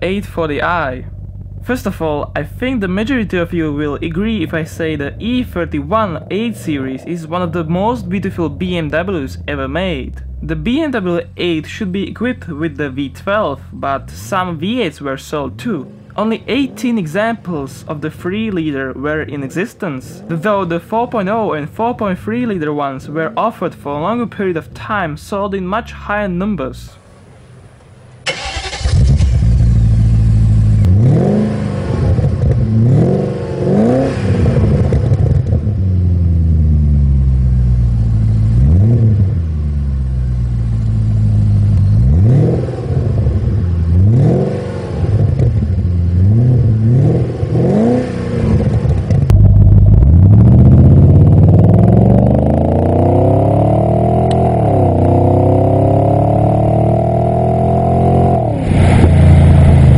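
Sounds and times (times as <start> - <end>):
car engine revving: 0.0 - 24.1, 27.0 - 59.9
car accelerating hard: 28.3 - 40.0, 41.2 - 59.9.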